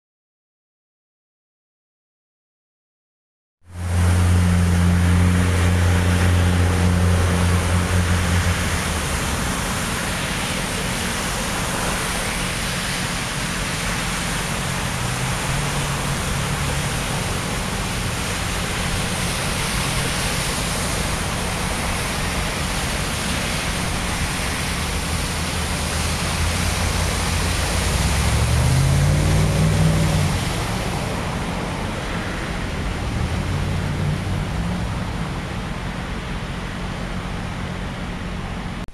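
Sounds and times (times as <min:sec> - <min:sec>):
low engine hum: 0:03.6 - 0:38.9
vehicle passing: 0:03.7 - 0:10.5, 0:14.8 - 0:36.2
steady rushing noise: 0:03.7 - 0:38.9
tyres splashing through water: 0:03.8 - 0:38.0.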